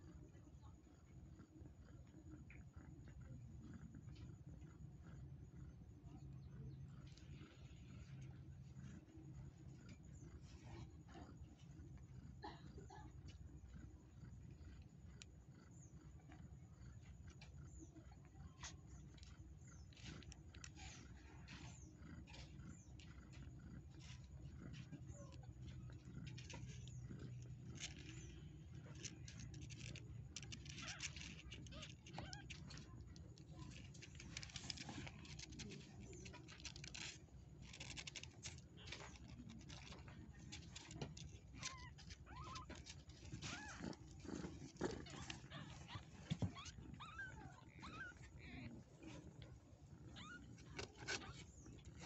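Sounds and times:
kittens squeaking: 0:16.9 - 0:52.0
kittens suckling wet clicks: 0:18.6 - 0:47.2.

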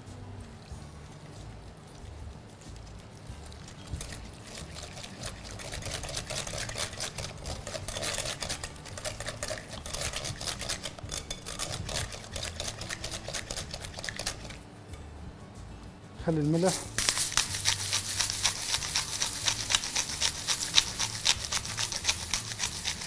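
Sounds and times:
whisk clicking against bowl: 0:03.4 - 0:14.6, 0:16.5 - 0:23.0.

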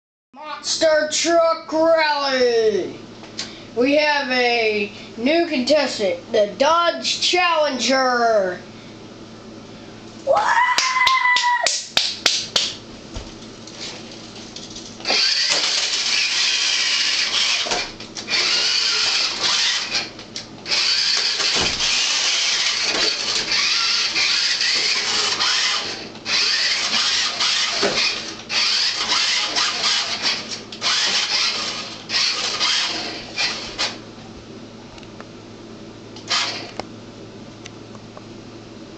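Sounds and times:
toy car motor whining: 0:15.0 - 0:34.0, 0:36.2 - 0:36.8.

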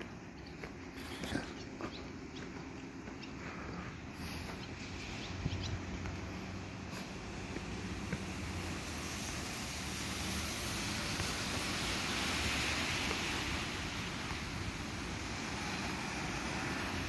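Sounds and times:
tyres on a wet road: 0:00.0 - 0:17.0
rain: 0:07.2 - 0:17.0.

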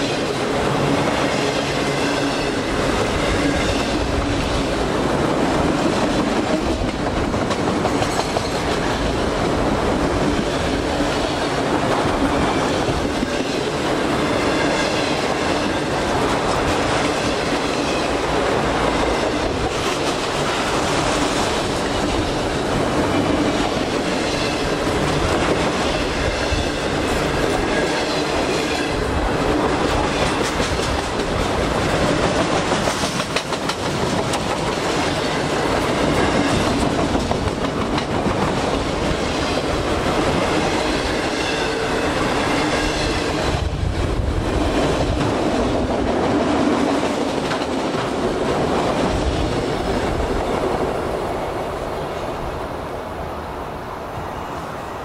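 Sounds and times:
wheels clacking over rail joints: 0:00.0 - 0:13.8, 0:18.9 - 0:43.7
freight train wheels rumbling on rails: 0:00.0 - 0:55.0.

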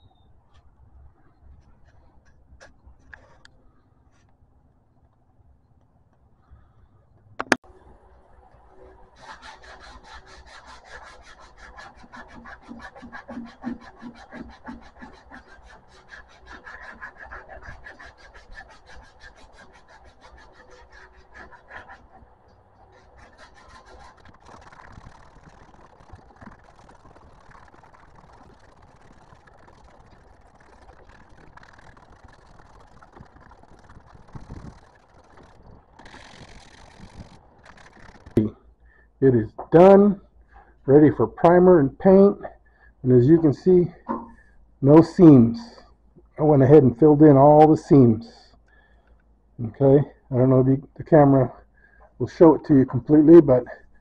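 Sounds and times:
sandpaper scratching: 0:08.8 - 0:38.4.

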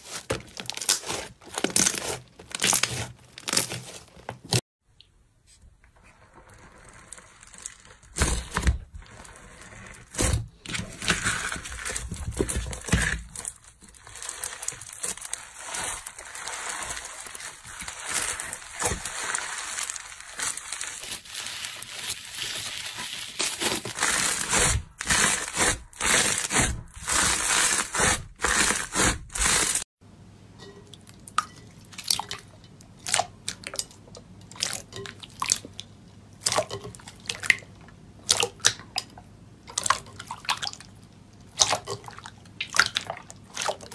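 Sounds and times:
crunchy slime crackling: 0:00.0 - 0:04.6, 0:06.5 - 0:29.8
wet slime squishing and popping: 0:31.0 - 0:43.9.

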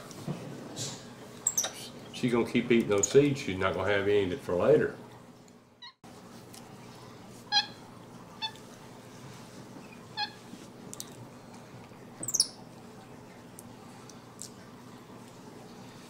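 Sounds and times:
monkey chirps: 0:01.5 - 0:01.8, 0:12.2 - 0:12.6.

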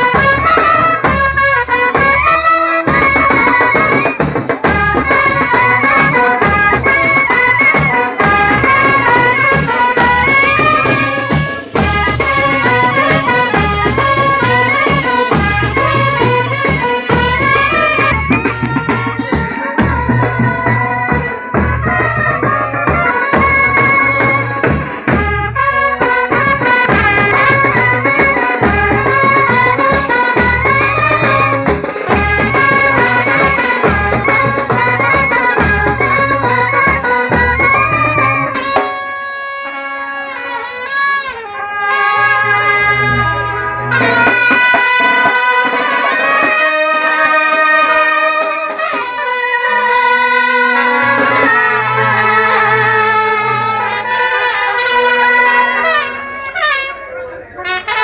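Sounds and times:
steady drum beat: 0:00.0 - 0:39.2, 0:43.8 - 0:47.5
wind instruments melody: 0:00.0 - 0:58.0.

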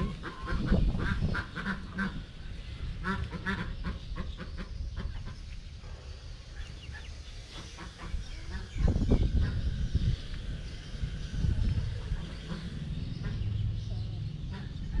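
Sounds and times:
ducks quacking: 0:00.0 - 0:05.6, 0:06.5 - 0:09.8, 0:11.8 - 0:15.0.

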